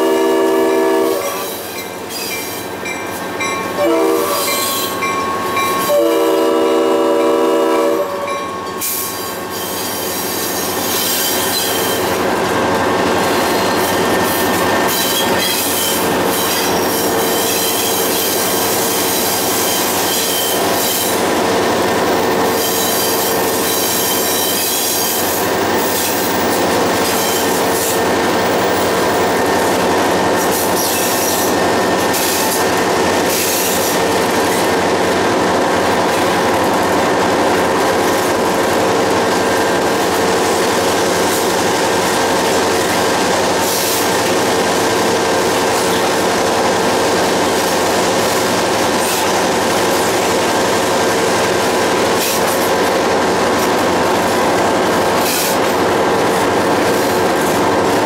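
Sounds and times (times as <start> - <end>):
train wheel squeal: 0.0 - 6.2, 8.0 - 21.3, 21.9 - 34.8, 42.5 - 44.5, 54.6 - 55.8
train wheels rumbling on rail: 0.0 - 58.0.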